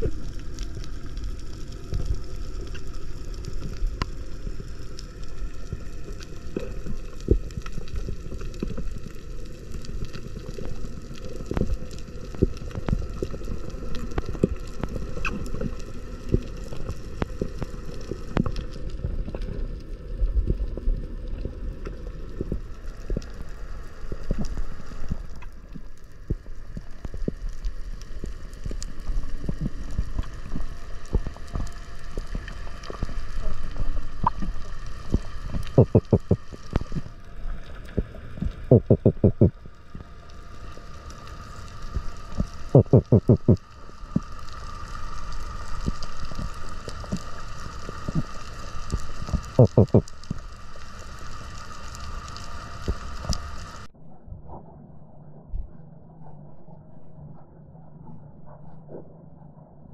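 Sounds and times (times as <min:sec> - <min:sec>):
muffled underwater rumble: 0:00.0 - 0:59.9
short clicks and crackles: 0:21.2 - 0:53.9.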